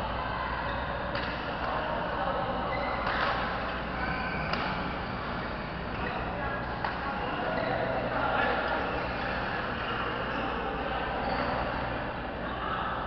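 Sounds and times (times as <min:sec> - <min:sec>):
distant voices: 0:00.0 - 0:13.0
steady low hum: 0:00.0 - 0:13.0
racket hitting shuttlecock: 0:01.1 - 0:01.4, 0:03.0 - 0:05.4.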